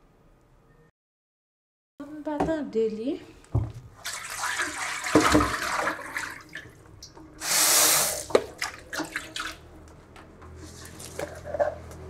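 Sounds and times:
tap running into a sink: 0:05.1 - 0:05.7, 0:08.2 - 0:08.6
loud gush of water: 0:07.4 - 0:08.4.

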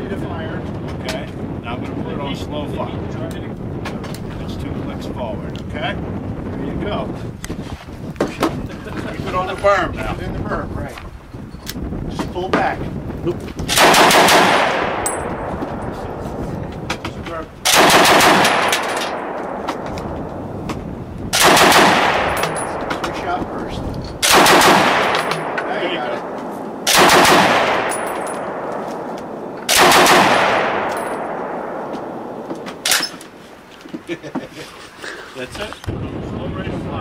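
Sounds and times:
rifle firing short bursts: 0:13.7 - 0:15.0, 0:17.7 - 0:19.2, 0:21.4 - 0:22.4, 0:24.2 - 0:25.6, 0:26.9 - 0:28.0, 0:29.7 - 0:30.9
gunshot echo: 0:13.7 - 0:15.5, 0:17.6 - 0:20.0, 0:21.3 - 0:23.2, 0:24.2 - 0:33.1.

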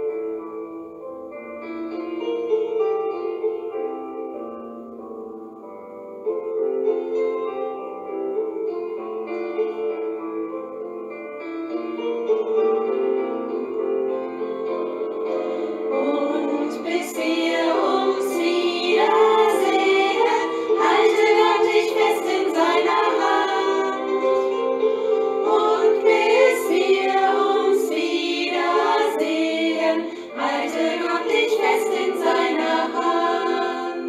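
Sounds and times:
held accompanying chords: 0:00.0 - 0:34.0
women's choir singing: 0:15.5 - 0:34.0.

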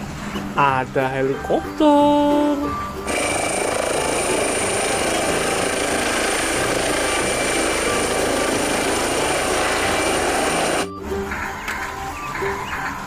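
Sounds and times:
helicopter rotor and turbine: 0:03.1 - 0:10.9.

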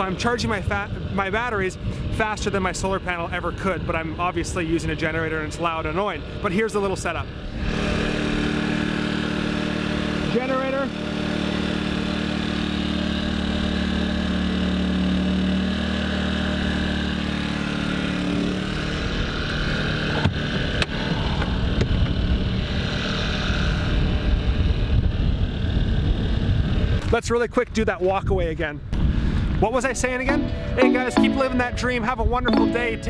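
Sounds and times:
portable generator humming: 0:06.2 - 0:24.3, 0:30.0 - 0:33.0.

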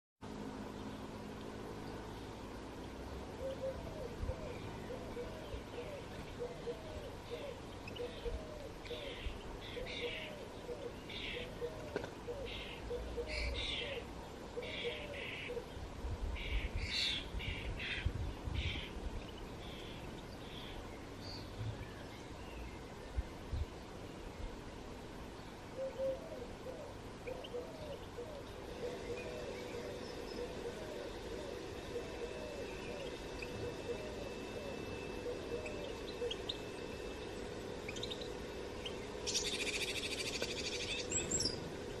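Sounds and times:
low hum: 0:00.2 - 0:42.0
songbirds chirping: 0:00.2 - 0:42.0
fast bird trill: 0:28.7 - 0:41.7.

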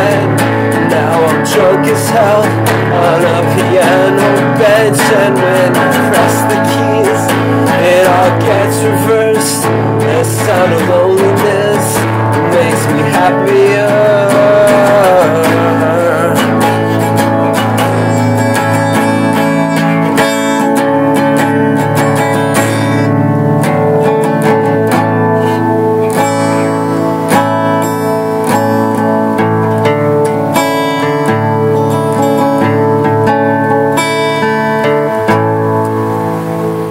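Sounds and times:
acoustic guitar strumming: 0:00.0 - 0:36.9.

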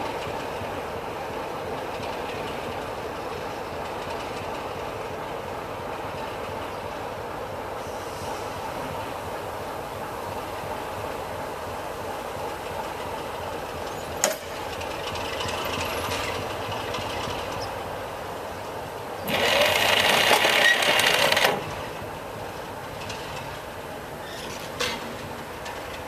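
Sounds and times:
diesel locomotive engine idling: 0:00.0 - 0:26.0
loud hiss: 0:07.6 - 0:13.2, 0:17.4 - 0:22.8.

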